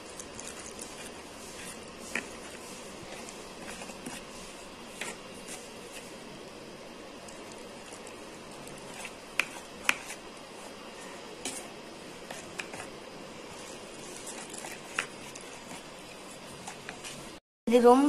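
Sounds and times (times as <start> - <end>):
spoon scraping dough in bowl: 0.2 - 6.1, 7.3 - 10.2.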